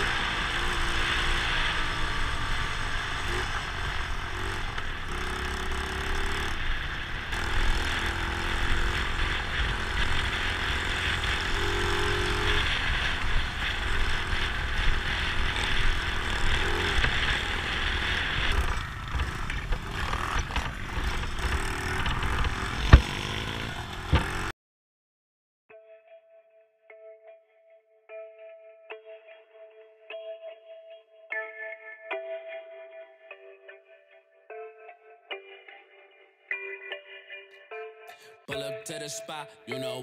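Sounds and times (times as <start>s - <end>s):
dirt bike engine running: 0.0s - 24.5s.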